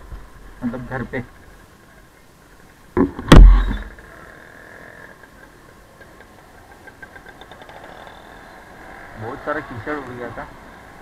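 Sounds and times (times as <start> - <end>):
loud knock and thump: 3.0 - 3.9
faint regular ticks: 4.2 - 9.0.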